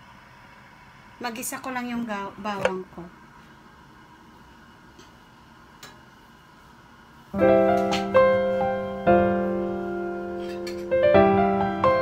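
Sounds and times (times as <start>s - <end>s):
slow piano chords: 7.4s - 12.0s.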